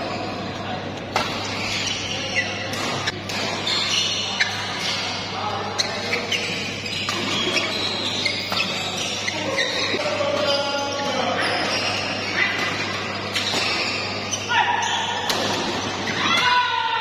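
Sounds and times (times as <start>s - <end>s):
shoes squeaking on court: 0.0s - 16.2s.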